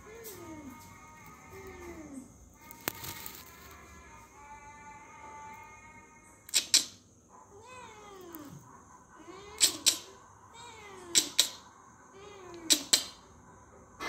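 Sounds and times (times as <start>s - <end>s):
sharp clicks: 6.5s - 7.0s, 11.1s - 11.6s
cat meowing: 7.4s - 8.6s, 9.2s - 13.1s.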